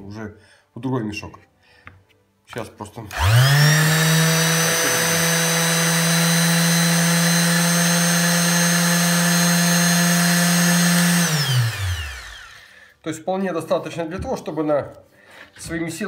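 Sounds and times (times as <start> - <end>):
orbital sander running: 3.1 - 12.9.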